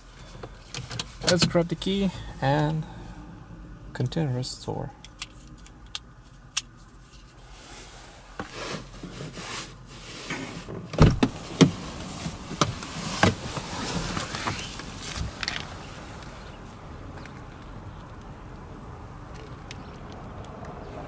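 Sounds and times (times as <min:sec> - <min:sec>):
car door shutting: 0:10.2 - 0:15.7
small clicks and rustling: 0:12.6 - 0:16.3.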